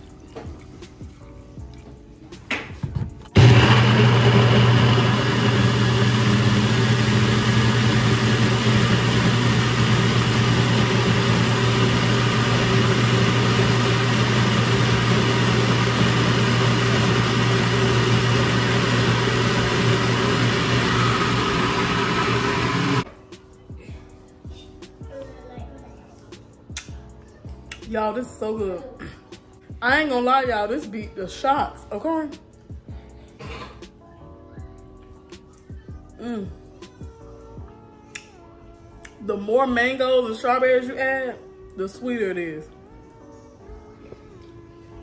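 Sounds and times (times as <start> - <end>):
blender motor running: 3.4 - 23.0.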